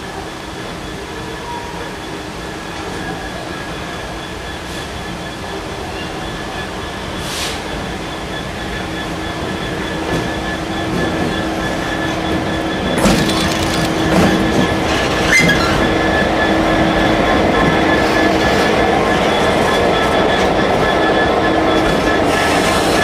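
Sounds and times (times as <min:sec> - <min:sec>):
diesel locomotive engine: 0:00.0 - 0:23.0
wheels clanking and squealing: 0:09.4 - 0:23.0.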